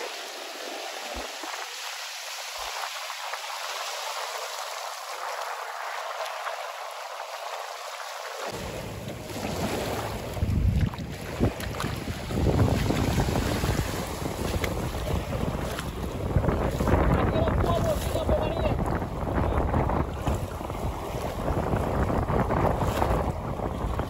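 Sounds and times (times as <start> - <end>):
small waves breaking: 0.0 - 24.0
wind buffeting microphone: 8.5 - 24.0.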